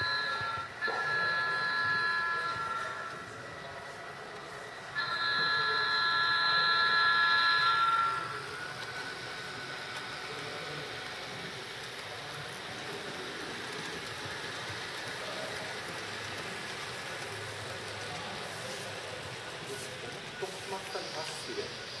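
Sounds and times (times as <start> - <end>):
multi-tone train air horn: 0.0 - 3.2, 5.0 - 8.5.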